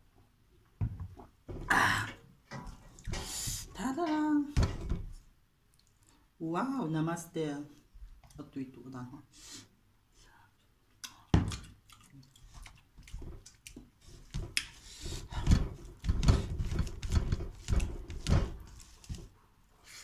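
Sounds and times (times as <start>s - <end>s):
short knocks and thumps: 4.5s - 5.2s, 14.3s - 19.3s
chewing: 10.9s - 14.0s.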